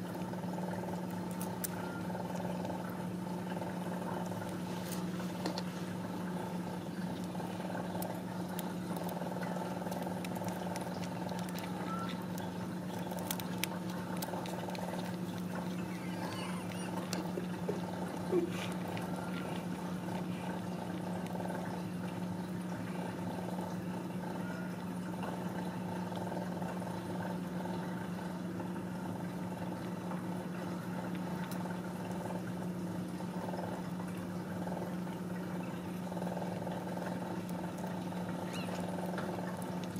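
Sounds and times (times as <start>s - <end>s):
cat purring: 0.4s - 22.1s, 36.1s - 39.9s
faint kitten squeak: 1.7s - 2.1s, 11.4s - 13.1s, 15.6s - 17.4s, 38.4s - 39.0s.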